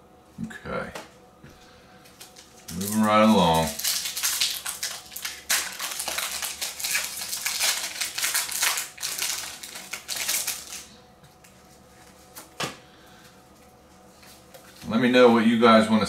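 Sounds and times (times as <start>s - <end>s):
foil wrapper crinkling and tearing: 2.1s - 11.0s.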